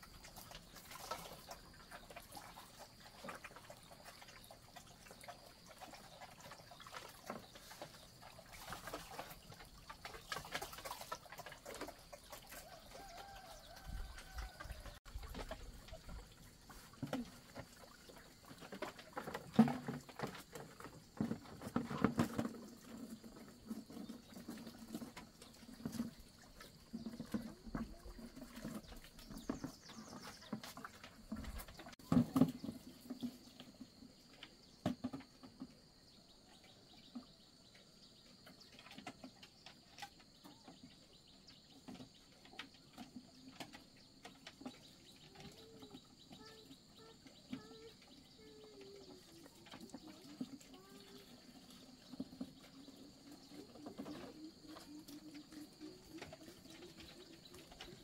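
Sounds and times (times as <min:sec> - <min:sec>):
water splashes and clinks: 0:00.0 - 0:33.4
watery feed sloshing and splashing: 0:00.0 - 0:58.0
bucket knocks: 0:18.6 - 0:26.2, 0:26.9 - 0:33.6.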